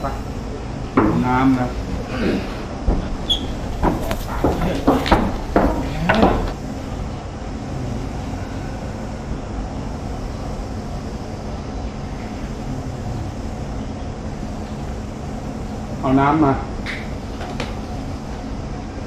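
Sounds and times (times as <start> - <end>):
faint hum: 0.0 - 19.0
low background rumble: 0.0 - 19.0.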